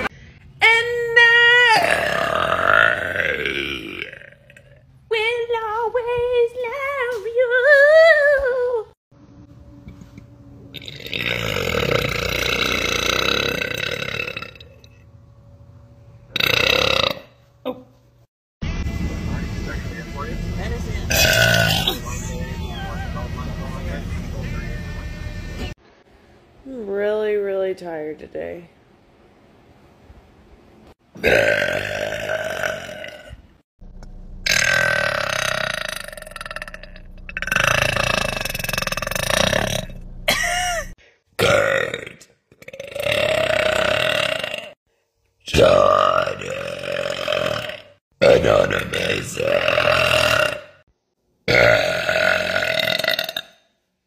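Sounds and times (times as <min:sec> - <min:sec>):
woman belching loudly: 0:01.7 - 0:04.8, 0:10.8 - 0:14.8, 0:16.3 - 0:17.3, 0:21.1 - 0:22.2, 0:31.2 - 0:33.3, 0:34.5 - 0:44.8, 0:45.6 - 0:48.0, 0:49.4 - 0:50.8, 0:51.5 - 0:53.6.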